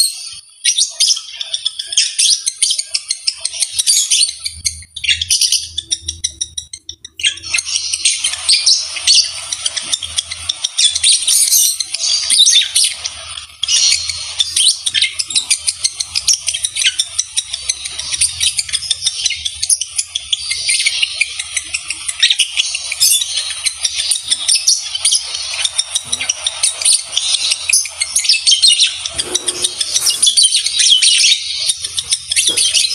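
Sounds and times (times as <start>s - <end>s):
lovebirds chattering: 0.0s - 32.9s.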